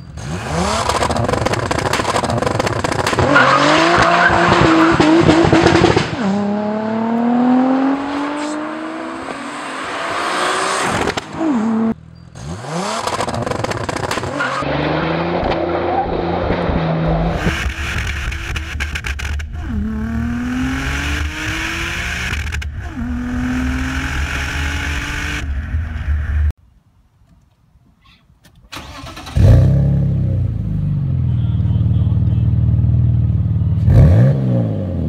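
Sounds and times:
car engine starting: 0:00.1 - 0:26.5, 0:28.7 - 0:31.4
car accelerating hard: 0:00.2 - 0:25.5.

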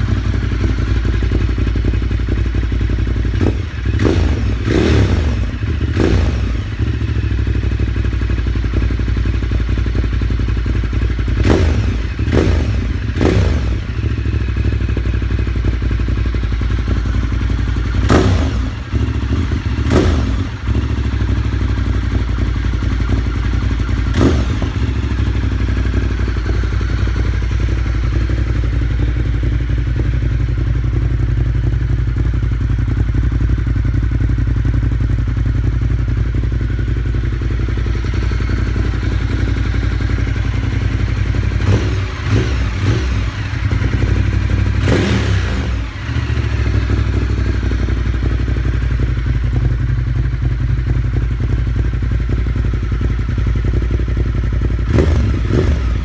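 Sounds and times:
motorcycle engine idling: 0:00.0 - 0:56.0
motorcycle throttle revs: 0:03.2 - 0:07.6, 0:11.3 - 0:15.2, 0:16.8 - 0:31.2, 0:37.0 - 0:49.1, 0:54.7 - 0:56.0.

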